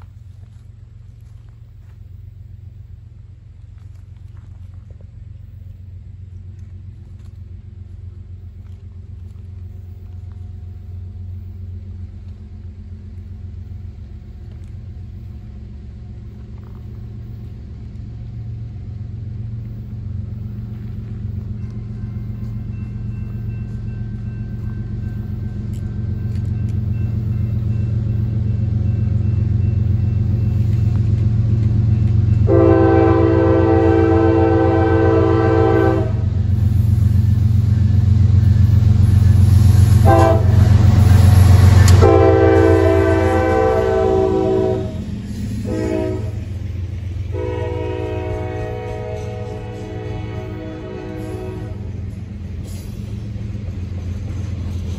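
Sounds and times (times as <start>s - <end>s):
diesel locomotive rumble: 0.0s - 54.9s
train horn chord: 32.4s - 36.4s, 39.9s - 46.6s, 47.2s - 52.0s.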